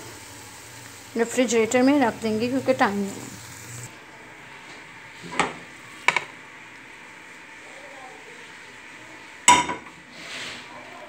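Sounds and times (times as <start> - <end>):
pan knocking on ceramic plate: 9.5 - 9.9.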